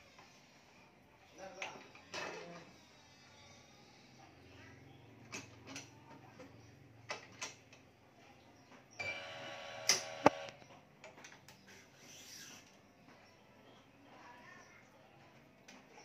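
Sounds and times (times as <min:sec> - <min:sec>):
motor whirring: 0:09.0 - 0:10.6
sharp clicks: 0:09.8 - 0:10.6.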